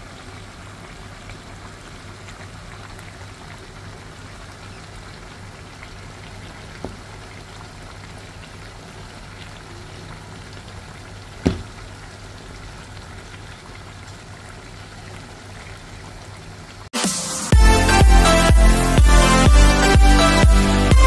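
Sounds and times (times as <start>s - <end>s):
stew simmering with bubbling hiss: 0.0s - 16.9s
faint tap: 6.8s - 7.0s
knock against a pan: 11.4s - 11.7s.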